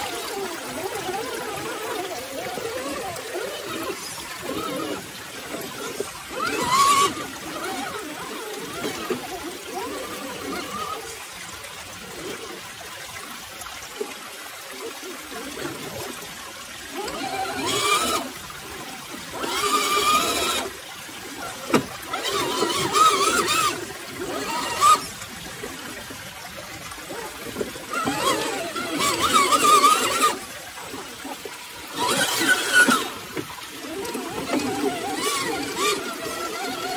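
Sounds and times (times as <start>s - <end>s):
electric motor and gears whining: 0.0s - 14.0s, 14.6s - 36.9s
creek trickling: 0.0s - 36.9s.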